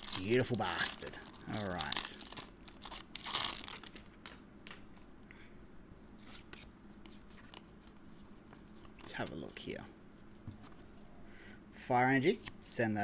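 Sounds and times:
foil wrapper crinkling and tearing: 0.0s - 4.4s.

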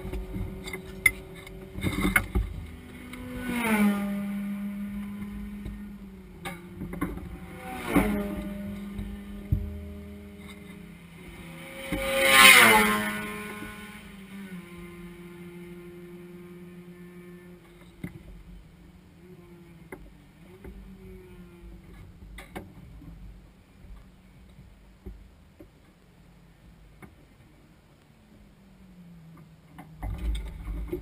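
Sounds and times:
vehicle passing by: 0.0s - 17.8s
vehicle engines running: 0.0s - 31.0s.

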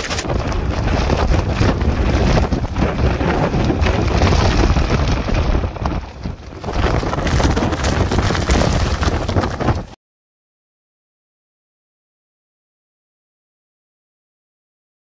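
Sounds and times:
driving rain: 0.0s - 9.9s
gusty wind buffeting microphone: 0.0s - 10.0s.

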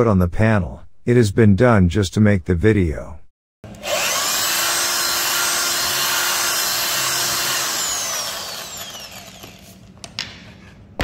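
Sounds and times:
drill motor winding down: 3.7s - 9.8s
electric drill boring into wood: 3.7s - 9.8s.

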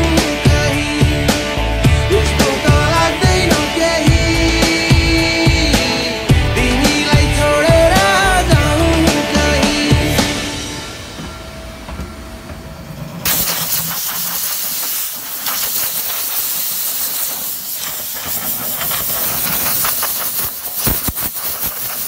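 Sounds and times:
loud steady hiss: 0.0s - 11.8s, 13.2s - 22.0s
song playing: 0.0s - 13.0s
low bumps: 0.1s - 13.3s.

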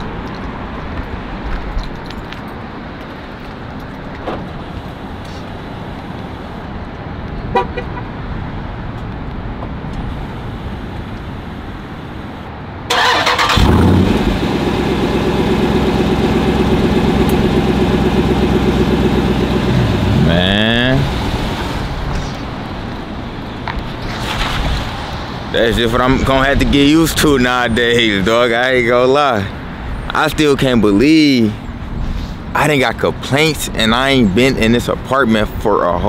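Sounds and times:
car engine starting and idling: 12.9s - 23.0s.

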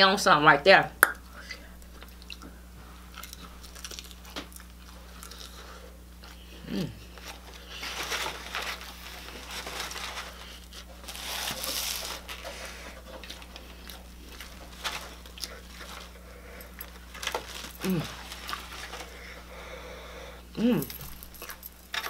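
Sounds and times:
low electrical hum: 0.0s - 22.0s
chewing crunchy food: 1.8s - 19.2s
styrofoam containers rustling: 7.3s - 13.6s.

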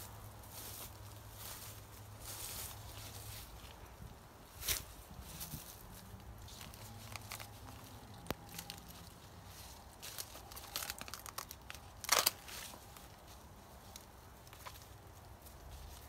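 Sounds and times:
corn leaves rustling: 0.0s - 16.0s.

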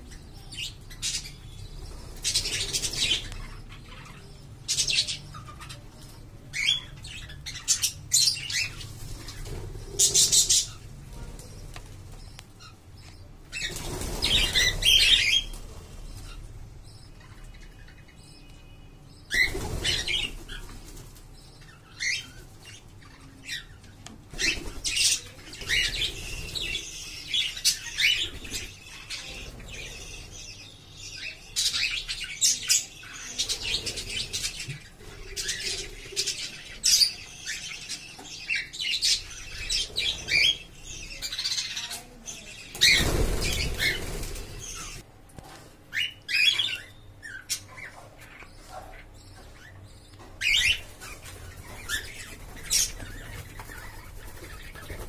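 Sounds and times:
birds chirping and squawking: 0.0s - 45.1s, 45.9s - 55.0s
wings flapping: 42.8s - 45.0s.

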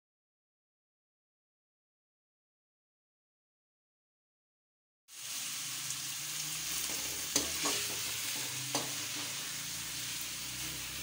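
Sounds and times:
onion sizzling in oil: 5.1s - 11.0s
spatula clinking against pan: 6.9s - 9.3s.

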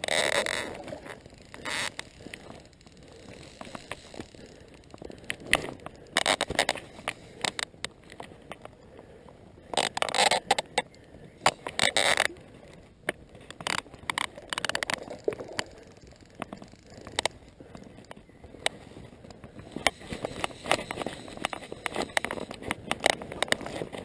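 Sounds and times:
fly reel clicking: 0.0s - 7.7s, 19.7s - 23.1s
scraping from handling reel: 19.7s - 22.6s.

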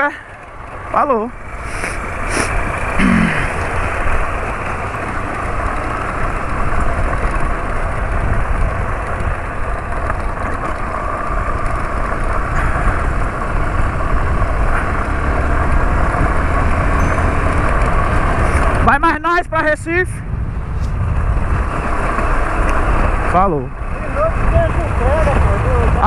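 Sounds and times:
motorcycle engine running: 0.0s - 26.0s
wind noise: 5.5s - 26.0s.

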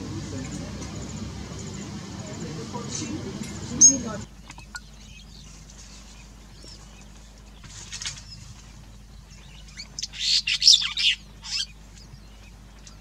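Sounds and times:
bird chattering chirps: 3.6s - 5.6s, 7.6s - 13.0s.

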